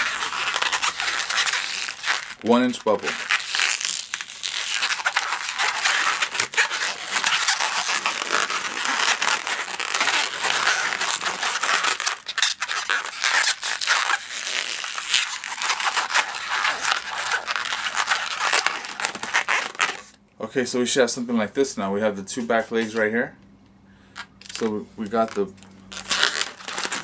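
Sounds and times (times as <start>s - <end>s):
balloon squeaking and rubbing: 0.0s - 20.2s, 24.2s - 27.0s.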